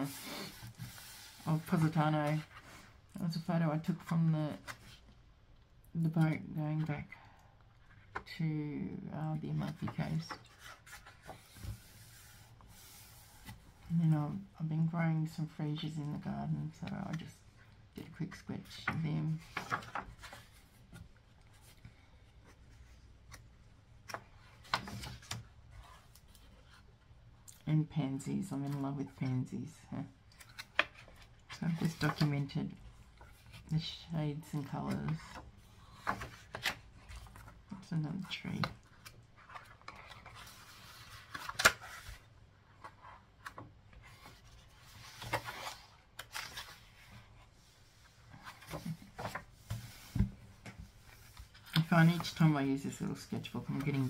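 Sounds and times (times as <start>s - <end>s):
paper rustle: 18.7s - 21.8s, 34.6s - 37.6s, 38.3s - 52.6s.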